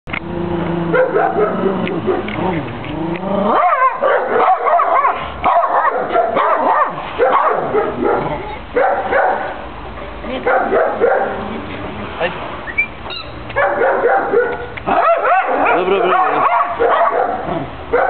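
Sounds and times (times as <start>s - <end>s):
dog barking and yelping: 0.9s - 2.5s, 3.4s - 9.6s, 10.4s - 11.4s, 13.5s - 18.0s.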